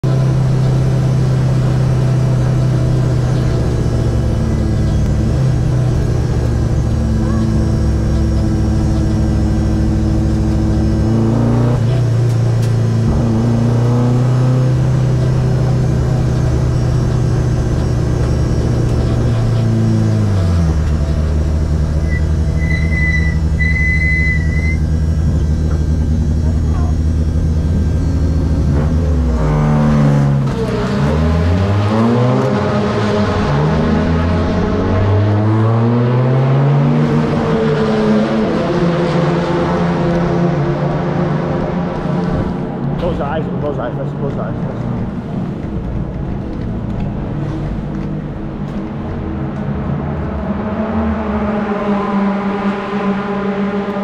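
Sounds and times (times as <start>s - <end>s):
race car engine running: 0.0s - 54.0s
short high electronic beeps: 22.0s - 24.8s.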